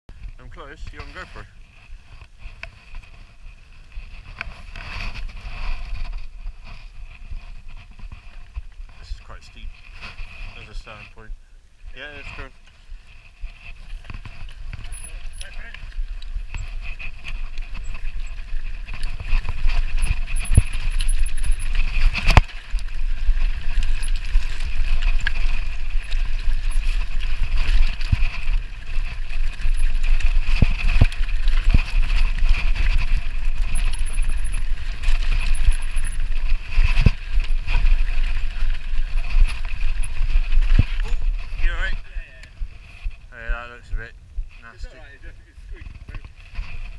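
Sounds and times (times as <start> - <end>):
bike rattling: 0.1 - 46.9
wind on microphone: 11.4 - 46.9.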